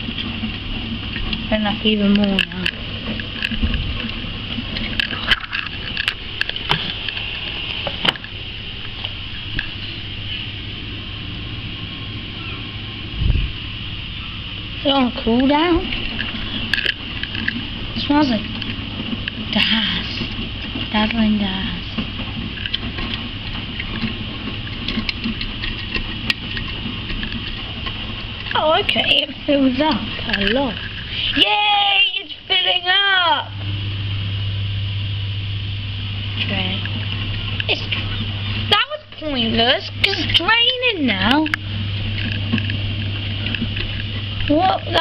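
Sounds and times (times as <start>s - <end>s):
washing machine drum humming: 0.0s - 45.0s
sharp clicks and knocks: 22.0s - 31.1s.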